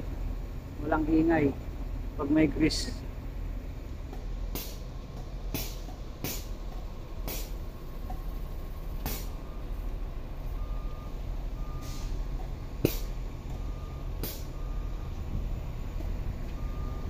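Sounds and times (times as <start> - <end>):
truck idling: 0.0 - 17.0
air hisses: 4.5 - 4.8, 5.5 - 6.6, 7.2 - 7.6, 9.0 - 9.4, 11.8 - 12.2, 12.8 - 13.2, 14.2 - 14.5
faint reversing beeps: 7.6 - 12.8, 13.5 - 17.0.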